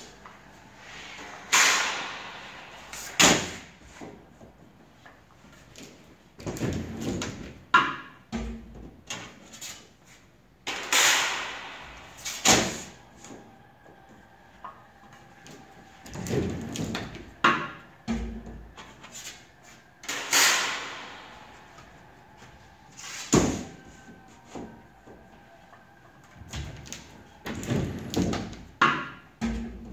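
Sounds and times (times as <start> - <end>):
squeegee sweeping across screen: 0.0 - 4.4, 18.7 - 25.6.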